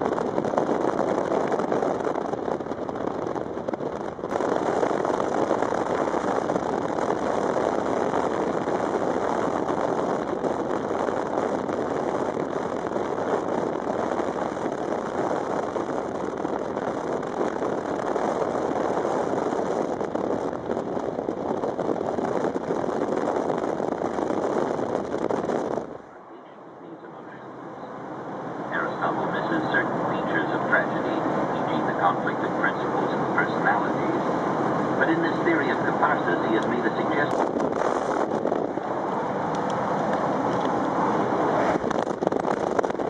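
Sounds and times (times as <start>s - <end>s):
car driving at speed: 0.0s - 43.0s.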